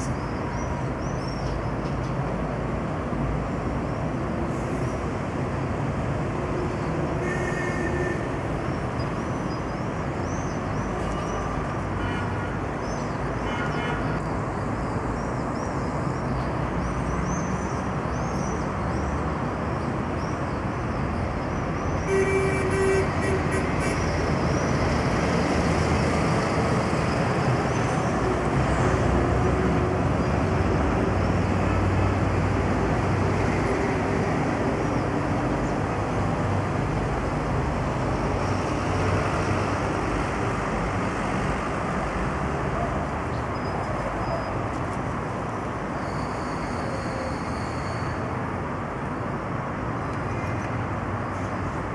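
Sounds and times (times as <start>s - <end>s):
road traffic: 0.0s - 51.9s
vehicle horn: 7.2s - 8.3s, 22.1s - 24.0s.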